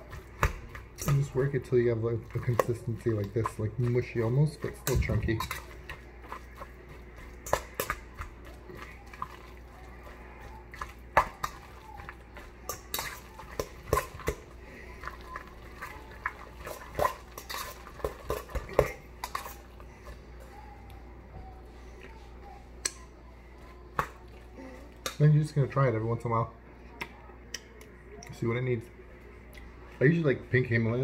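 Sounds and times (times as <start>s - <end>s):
fork clinking in metal bowl: 2.2s - 6.4s, 12.4s - 14.4s, 16.6s - 19.6s.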